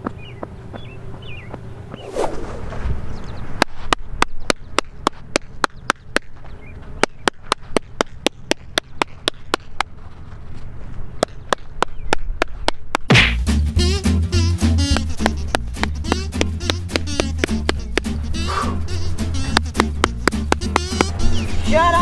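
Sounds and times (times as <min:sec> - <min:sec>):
whoosh: 0:02.0 - 0:03.1
rapid hand claps in gloves: 0:14.9 - 0:18.2, 0:19.5 - 0:21.2.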